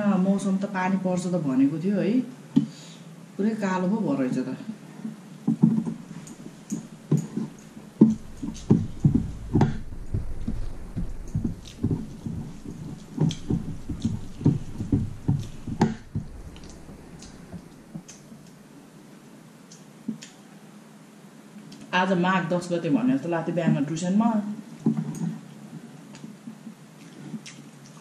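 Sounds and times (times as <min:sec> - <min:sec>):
low rumble: 0:06.0 - 0:18.9
chewing smacks and clicks: 0:19.7 - 0:20.4, 0:27.0 - 0:28.0.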